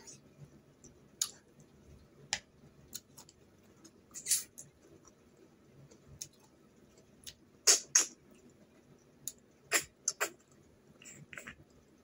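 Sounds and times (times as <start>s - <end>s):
lips sucking smacks: 7.6s - 8.1s.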